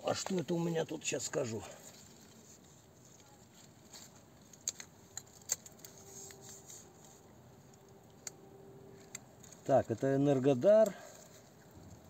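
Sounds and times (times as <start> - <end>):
vine leaves rustling: 0.0 - 12.0.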